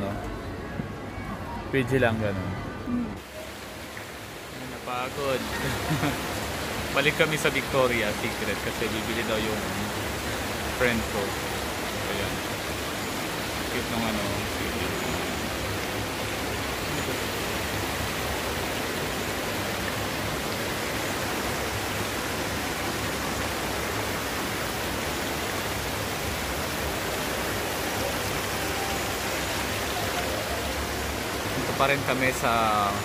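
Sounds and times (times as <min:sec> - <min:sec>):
fountain water splashing: 0:03.2 - 0:33.0.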